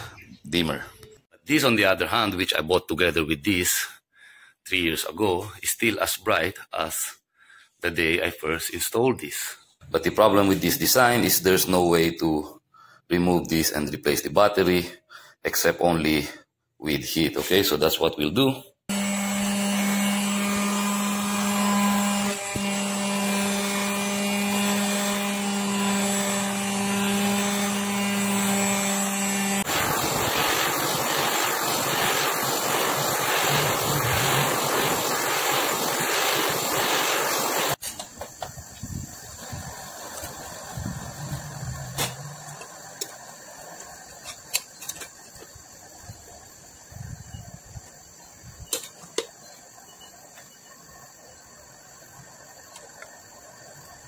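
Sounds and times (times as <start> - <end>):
heat gun humming: 18.9 - 38.3
torch flame hissing: 29.6 - 46.9.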